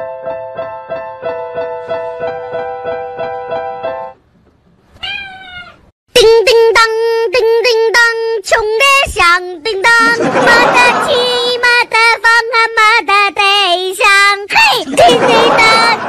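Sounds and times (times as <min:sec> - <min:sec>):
digital piano notes: 0:00.0 - 0:04.2
cat meowing: 0:05.0 - 0:05.9
high singing voice: 0:06.1 - 0:16.0.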